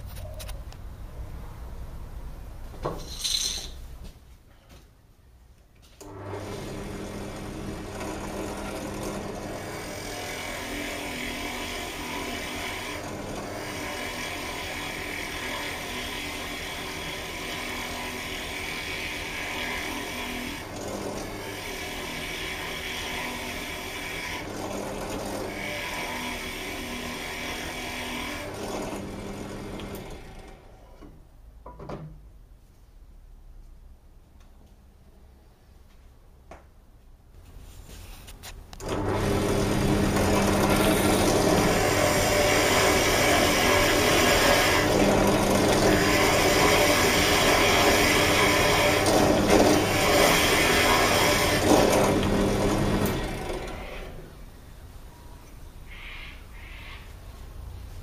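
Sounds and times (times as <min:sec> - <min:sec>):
drill bit boring into wood: 0:06.4 - 0:30.6, 0:38.8 - 0:54.2
drill press motor humming: 0:38.8 - 0:54.3
motor winding down: 0:38.8 - 0:54.3.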